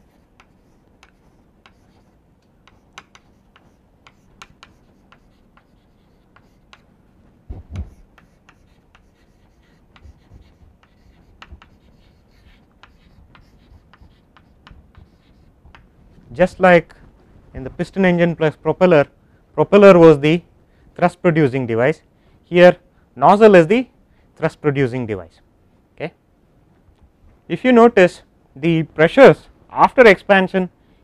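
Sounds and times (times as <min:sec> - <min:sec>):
chalk tapping and scratching: 0:00.0 - 0:06.9, 0:07.6 - 0:15.9.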